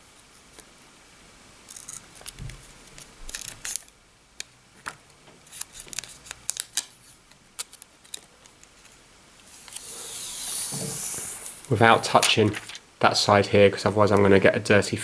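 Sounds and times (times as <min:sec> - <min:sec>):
plastic film crackling: 0:01.7 - 0:04.0, 0:05.4 - 0:09.9, 0:11.4 - 0:12.8.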